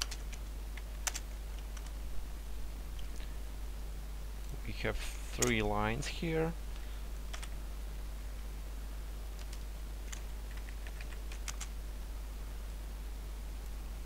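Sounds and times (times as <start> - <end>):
keyboard typing: 0.0 - 1.9, 7.3 - 7.5, 9.4 - 11.7
low electrical hum and hiss: 0.0 - 14.0.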